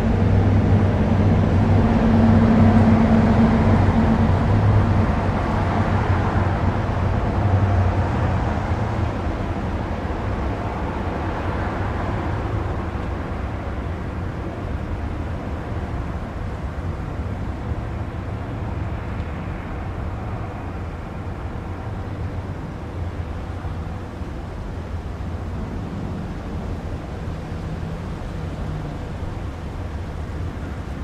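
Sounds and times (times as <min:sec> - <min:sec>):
steady low rumbling: 0:00.0 - 0:09.6.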